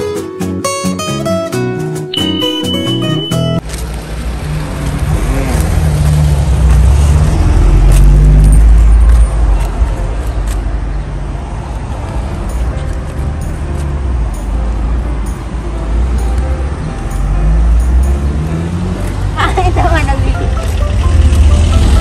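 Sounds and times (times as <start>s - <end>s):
traffic noise: 2.2s - 22.0s
vehicle passing by: 3.7s - 9.5s, 11.0s - 22.0s.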